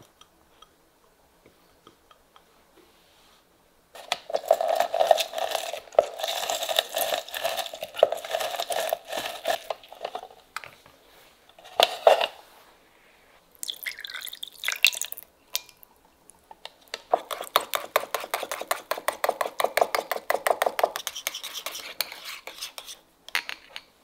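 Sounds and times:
juice poured into bowl: 0:13.5 - 0:15.9
juice dripping: 0:13.5 - 0:16.4.

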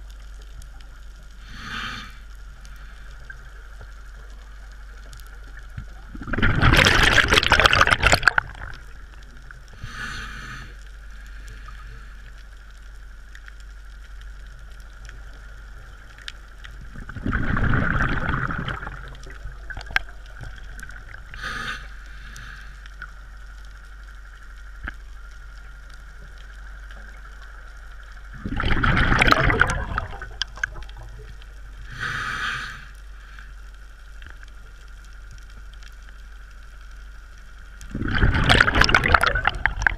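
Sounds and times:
faint steady whine: 0:00.0 - 0:39.9
regulator hiss: 0:01.3 - 0:05.0, 0:09.7 - 0:13.9, 0:21.0 - 0:28.1, 0:31.6 - 0:34.7
exhaled bubbles bursting: 0:05.8 - 0:09.1, 0:16.8 - 0:21.4, 0:28.3 - 0:31.4, 0:37.8 - 0:39.9.

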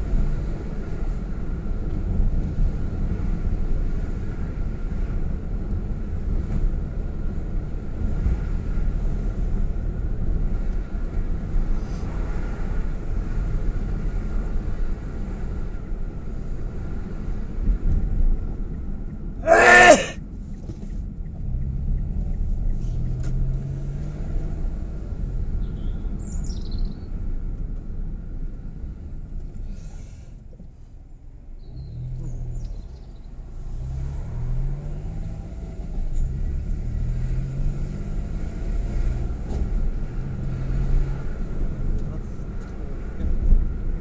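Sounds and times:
road rumble: 0:00.0 - 0:44.0
car engine accelerating: 0:20.7 - 0:25.5, 0:33.4 - 0:42.0.

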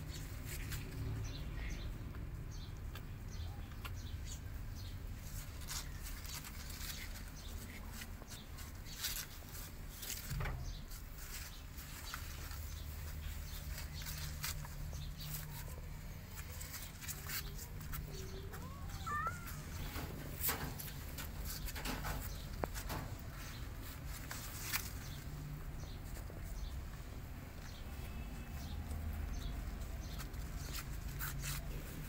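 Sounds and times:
kitten claws scratching cardboard: 0:03.8 - 0:25.5, 0:29.3 - 0:32.0
faint cat mew: 0:18.6 - 0:19.8.

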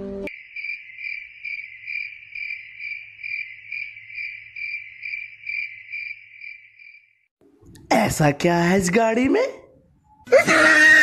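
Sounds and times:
cricket chirping: 0:00.3 - 0:07.3.

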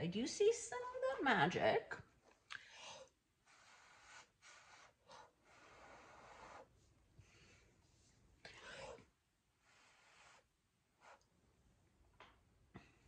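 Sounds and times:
soft puffs of breath: 0:02.6 - 0:11.3.

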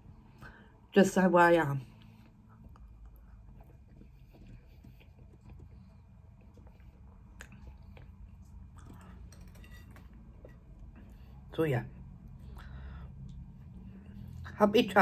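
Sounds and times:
faint chewing: 0:01.8 - 0:11.5.

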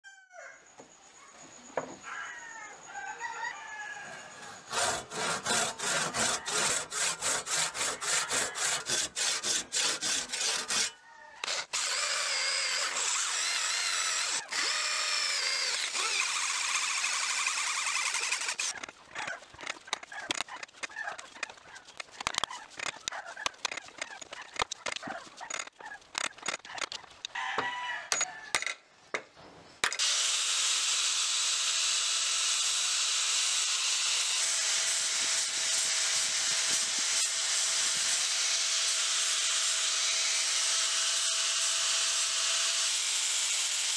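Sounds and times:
electric drill boring wood: 0:04.7 - 0:18.9, 0:30.0 - 0:43.9
regular strokes: 0:15.6 - 0:27.4
punch tapping and scraping: 0:18.7 - 0:27.2.

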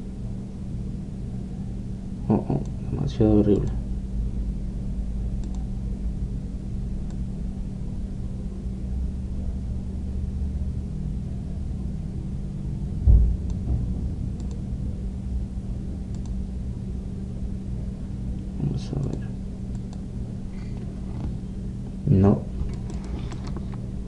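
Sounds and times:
low background hum and rumble: 0:00.0 - 0:24.0
faint mouse clicks: 0:05.4 - 0:05.7, 0:07.0 - 0:07.2, 0:14.4 - 0:14.6, 0:16.1 - 0:16.4, 0:19.0 - 0:20.0
dull thump: 0:13.0 - 0:14.1.

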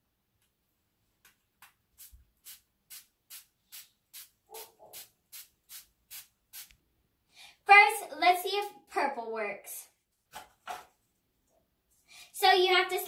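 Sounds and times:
spray bottle squirts: 0:02.0 - 0:06.7.

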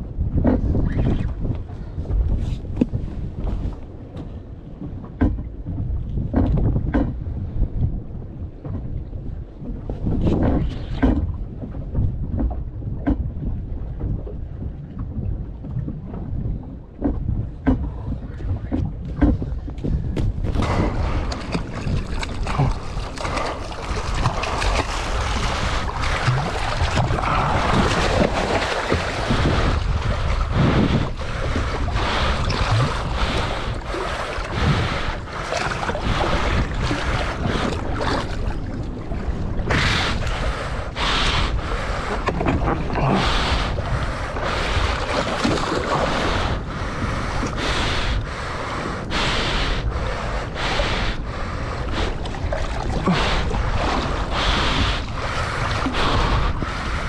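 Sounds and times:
water sloshing against hull: 0:00.0 - 0:57.0
wind buffeting microphone: 0:00.0 - 0:57.0
short splashes and knocks: 0:17.0 - 0:34.6, 0:44.9 - 0:46.0.

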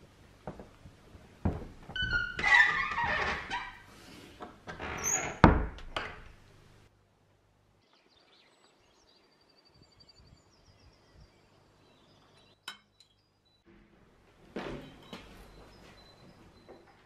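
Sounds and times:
door being opened: 0:01.4 - 0:03.9, 0:04.6 - 0:06.4
faint birdsong: 0:07.6 - 0:13.8, 0:14.6 - 0:17.0.

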